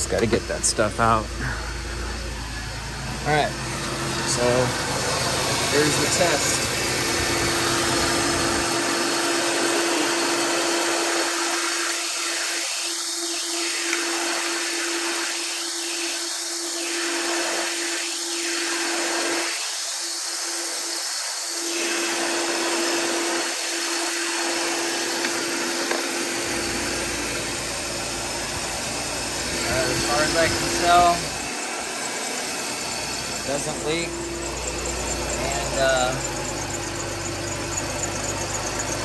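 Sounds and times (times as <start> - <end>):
car engine idling: 0.0 - 9.6, 25.9 - 39.0.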